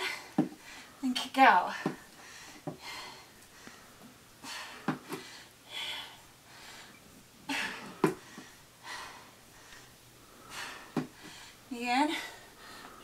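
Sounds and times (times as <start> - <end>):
person breathing hard: 1.7 - 13.0.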